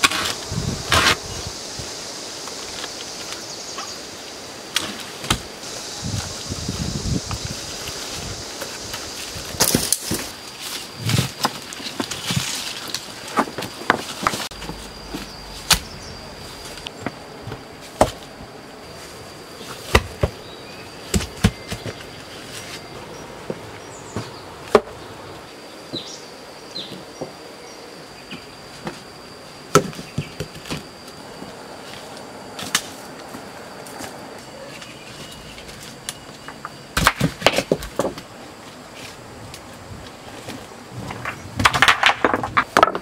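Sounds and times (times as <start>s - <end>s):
high insect buzz: 0.0s - 42.8s
footsteps on rock and leaves: 6.2s - 17.1s.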